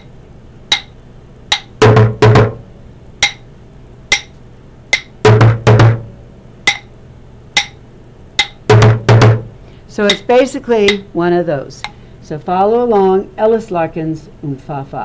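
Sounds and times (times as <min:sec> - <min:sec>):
drumsticks on plastic bucket: 0:10.1 - 0:10.3.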